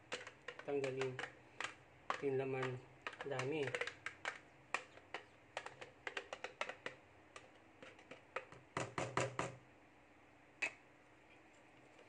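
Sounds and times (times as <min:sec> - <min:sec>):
plastic blender jar clicks and knocks: 0:00.1 - 0:09.6.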